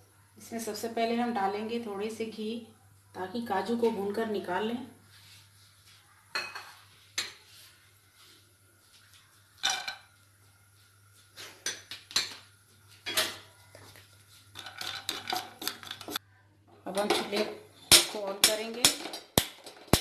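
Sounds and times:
nuts clattering into a pan: 0:17.0 - 0:20.0
utensils knocking on a pan: 0:17.0 - 0:20.0.

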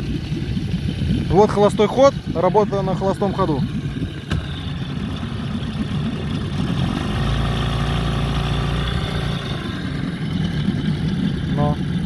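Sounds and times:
outboard motor idling: 0:00.0 - 0:12.0.

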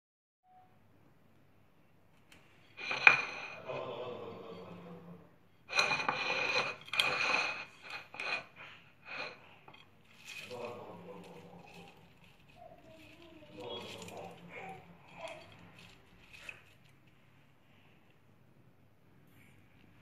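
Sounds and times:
scraping and rustling: 0:02.2 - 0:05.0, 0:05.6 - 0:17.9
glass bowl clinking: 0:02.6 - 0:04.9, 0:05.6 - 0:16.8.

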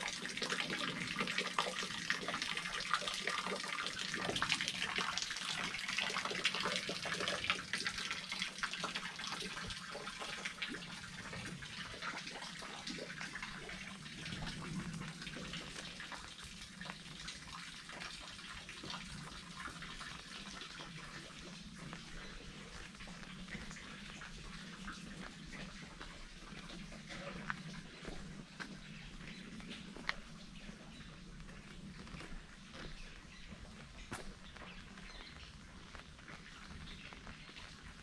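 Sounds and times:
water dripping: 0:00.0 - 0:38.0
water trickling and splashing: 0:00.0 - 0:38.0.

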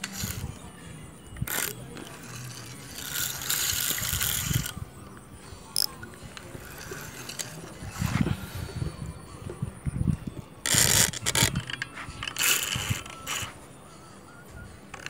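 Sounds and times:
fishing reel clicking: 0:00.0 - 0:00.6, 0:01.4 - 0:08.8, 0:10.6 - 0:13.6.

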